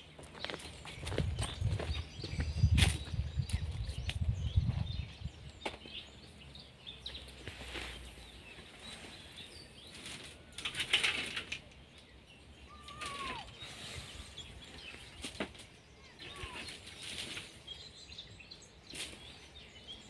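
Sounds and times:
rustling of dry leaves and brush: 0.0 - 20.0
faint bird chirps: 11.9 - 20.0.

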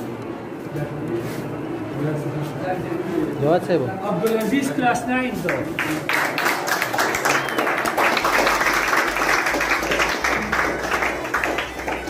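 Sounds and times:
crowd applauding: 5.5 - 12.0.

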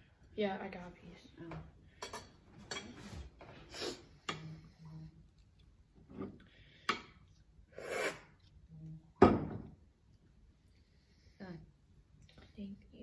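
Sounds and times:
utensils scraping bowls and plates: 2.0 - 3.3.

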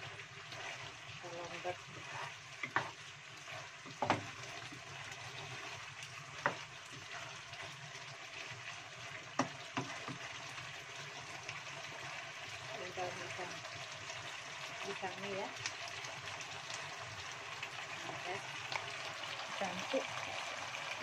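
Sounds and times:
food sizzling in a frying pan: 0.0 - 21.0
spatula knocking against pan: 2.6 - 3.0, 3.9 - 4.3, 6.4 - 6.6, 9.4 - 10.2.

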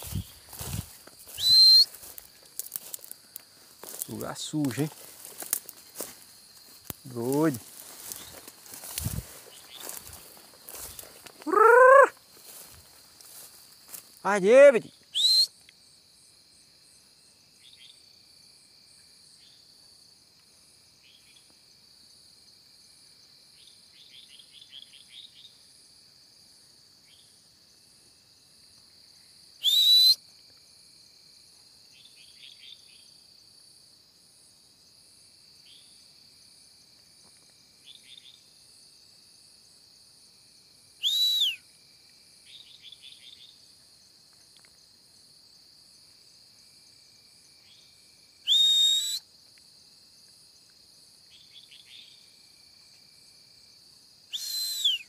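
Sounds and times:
night insects shrilling: 0.0 - 20.1, 28.3 - 33.6, 37.6 - 55.0
short loud whistles: 1.3 - 2.0, 15.1 - 15.6, 29.6 - 30.2, 41.0 - 41.6, 48.4 - 49.3, 54.3 - 55.0.

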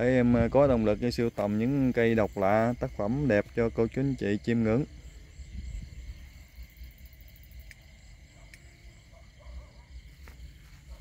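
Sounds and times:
night insects chirring: 0.0 - 11.0
light clicks: 7.6 - 8.7.

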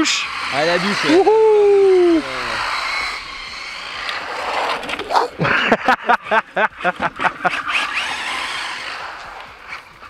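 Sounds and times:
tyres on wet asphalt: 0.0 - 10.0
man laughing in short bursts: 5.4 - 7.7.

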